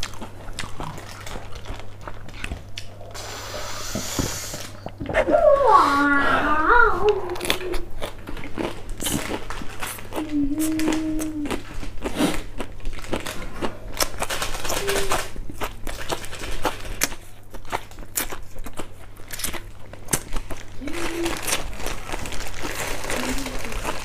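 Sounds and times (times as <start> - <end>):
close-up chewing: 0.0 - 3.2, 7.0 - 24.0
person humming mmm: 3.2 - 7.9, 10.1 - 11.7, 20.8 - 21.6, 23.0 - 23.9
foil packet crinkling: 8.8 - 24.0.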